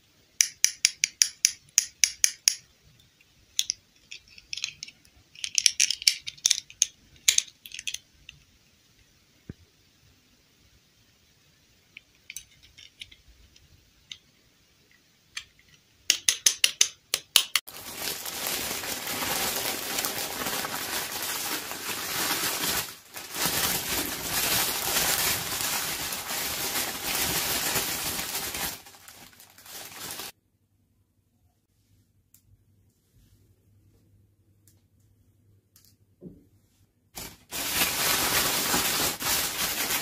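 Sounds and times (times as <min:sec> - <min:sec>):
plastic dolls clicking: 0:03.5 - 0:08.4, 0:15.4 - 0:17.7
plastic bag crinkling: 0:17.7 - 0:30.4, 0:37.2 - 0:40.0.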